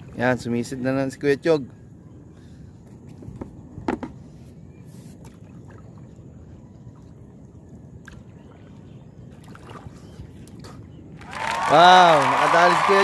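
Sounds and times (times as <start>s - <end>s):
lake water lapping: 0.0s - 13.0s
small water splash: 4.9s - 12.9s.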